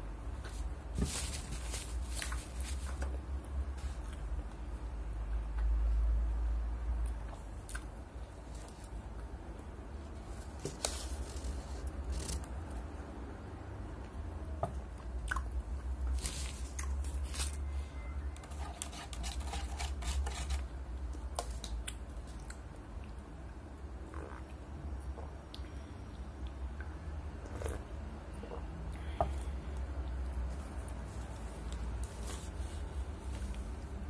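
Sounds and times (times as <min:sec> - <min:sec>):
drinking from paper cup: 0:27.4 - 0:28.7.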